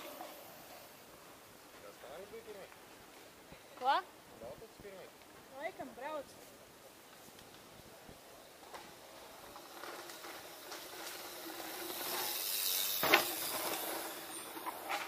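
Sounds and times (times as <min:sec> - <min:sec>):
bike tyres on dirt: 0:00.0 - 0:04.0, 0:06.4 - 0:15.0
bike clacking: 0:08.5 - 0:15.0.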